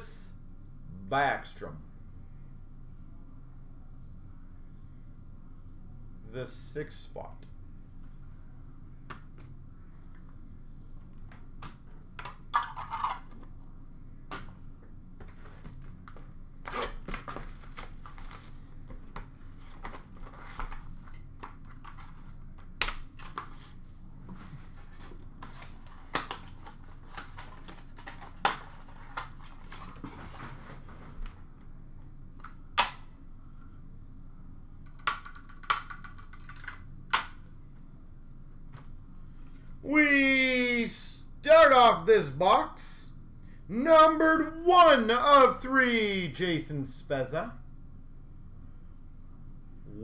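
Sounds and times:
cardboard rustling: 23.2 - 31.2.

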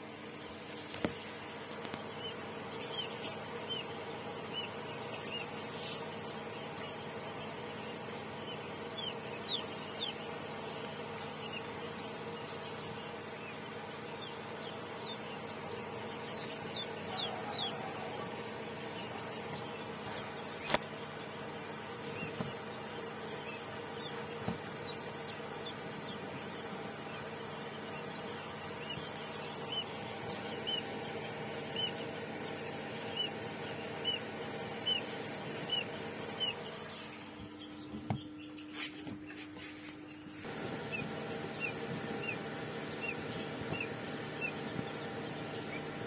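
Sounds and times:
chicks peeping: 0.0 - 46.0
incubator machine hum: 0.0 - 46.0.

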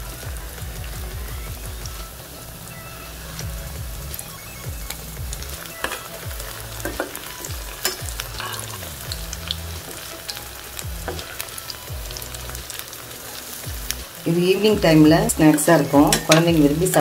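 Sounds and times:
oil sizzling and crackling: 0.0 - 17.0
steel spoon clinking: 5.7 - 9.0.

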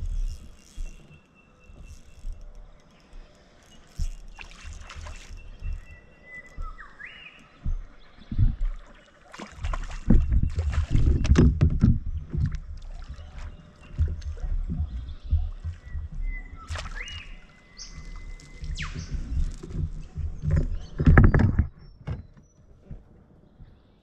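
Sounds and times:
water sloshing: 0.0 - 22.3.

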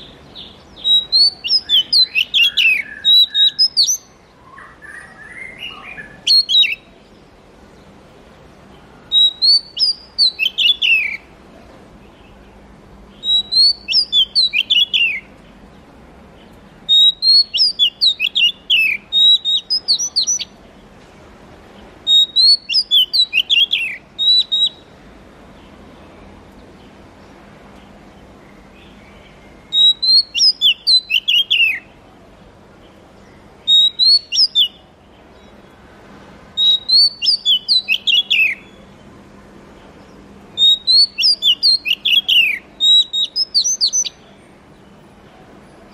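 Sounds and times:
bird singing whistled phrases: 0.0 - 7.0, 9.0 - 11.3, 13.2 - 15.3, 16.9 - 20.5, 22.1 - 24.9, 29.6 - 31.9, 33.6 - 34.8, 36.6 - 38.8, 40.6 - 44.2.

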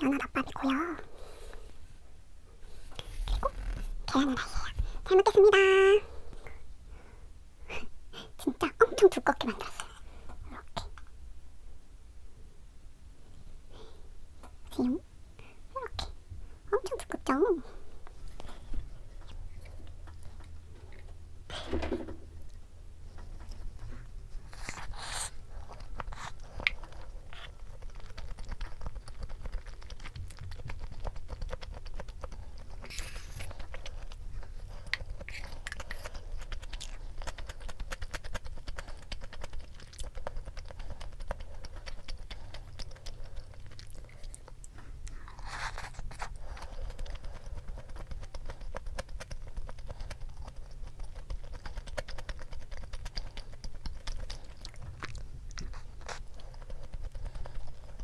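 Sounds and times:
chewing mouth sounds: 23.2 - 58.0.

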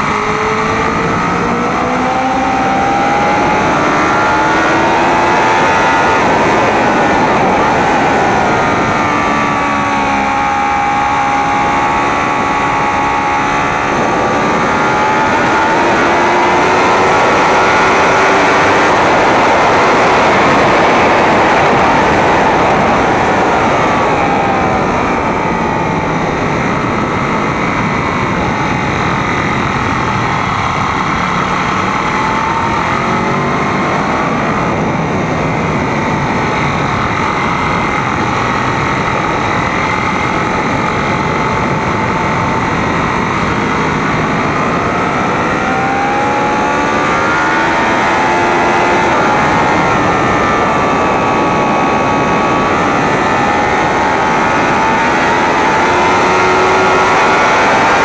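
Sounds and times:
motorcycle engine revving: 0.0 - 58.0
wind rush: 0.0 - 58.0.

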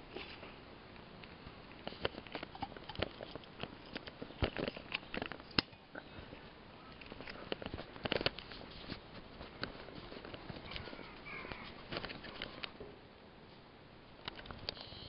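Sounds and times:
plastic stakes clicking: 1.8 - 5.8.

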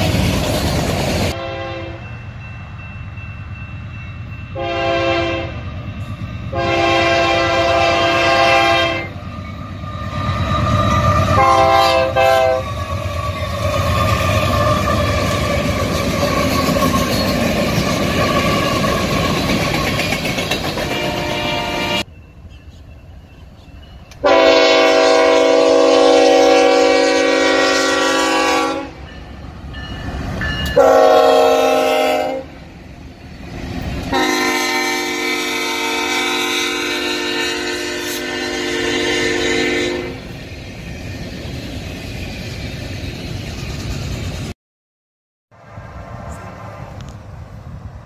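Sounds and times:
train cars rumbling and clattering: 0.0 - 44.6
locomotive air horn chord: 1.3 - 2.1, 4.6 - 5.6, 6.5 - 9.2, 11.3 - 12.7, 20.9 - 22.1, 24.2 - 29.0, 30.8 - 32.6, 34.1 - 40.2.

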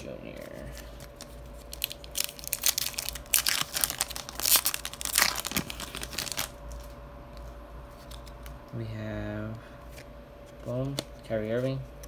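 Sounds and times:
foil wrappers crinkling and tearing: 0.3 - 6.9.

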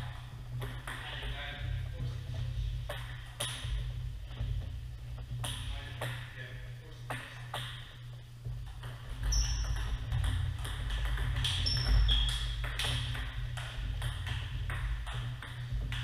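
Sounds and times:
table tennis ball clicking: 8.8 - 16.0
sneakers squeaking on wooden floor: 9.0 - 10.2, 11.3 - 13.1.

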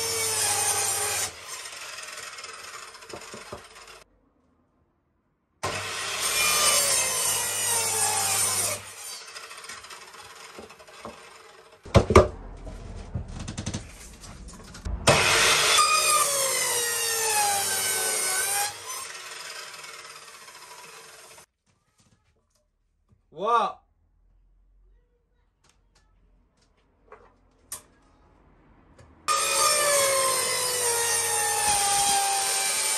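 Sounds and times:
mitre saw cutting boards: 0.0 - 4.0, 5.6 - 12.3, 13.6 - 21.5, 29.3 - 32.9
wood knock: 11.9 - 15.4.

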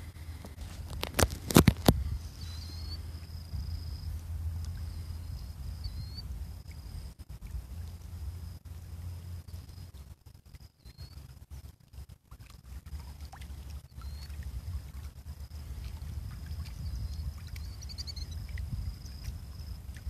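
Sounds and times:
wind buffeting microphone: 0.0 - 10.1, 13.8 - 20.0
small waves lapping: 0.0 - 20.0
faint high chirps: 2.3 - 3.1, 4.7 - 7.1, 9.4 - 11.3, 16.6 - 19.2.

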